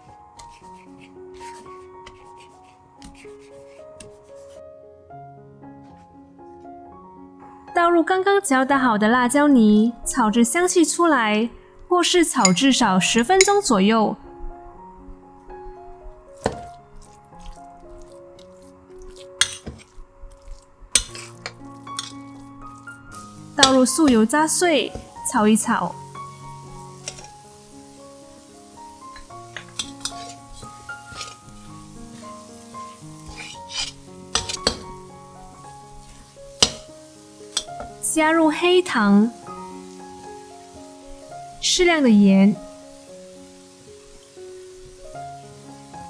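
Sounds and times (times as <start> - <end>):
soft background music: 0.0 - 46.0
metal spatula scraping wok: 19.1 - 25.3, 26.7 - 27.4, 29.1 - 38.0.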